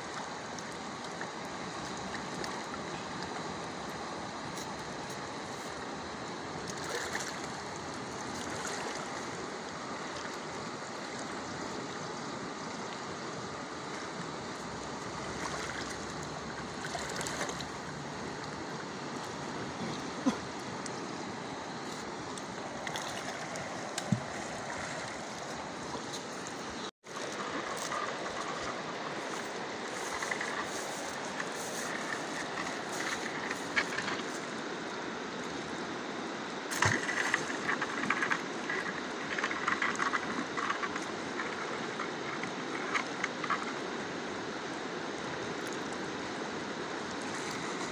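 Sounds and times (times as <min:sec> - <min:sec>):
river rushing: 0:13.4 - 0:39.9
crackling noises: 0:13.7 - 0:34.6, 0:36.7 - 0:44.0.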